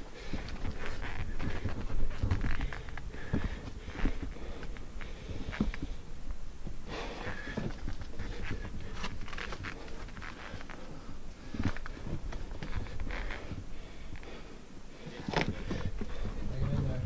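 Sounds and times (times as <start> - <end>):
person panting: 0.0 - 6.1, 6.8 - 16.6
hands and boots scraping rock: 15.0 - 17.0.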